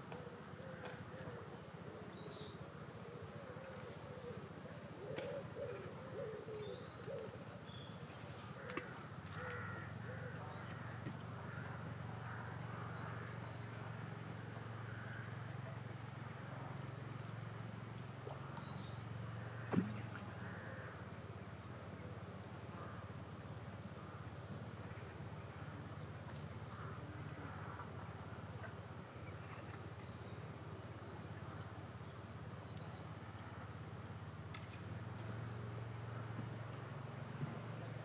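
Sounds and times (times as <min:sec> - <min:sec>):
low hooting bird calls: 0:00.0 - 0:15.9, 0:17.6 - 0:33.1
steady low hum: 0:00.0 - 0:38.0.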